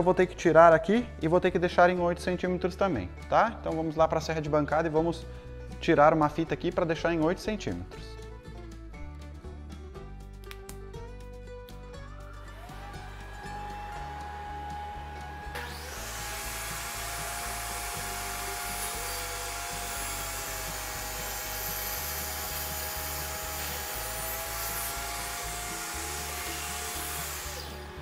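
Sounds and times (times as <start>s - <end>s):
background music with steady beat: 0.0s - 28.0s
table saw ripping board: 15.5s - 28.0s.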